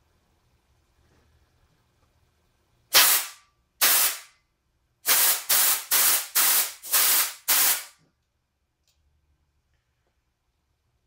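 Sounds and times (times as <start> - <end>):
compressed air blasts hissing: 2.9 - 4.3, 5.0 - 8.0.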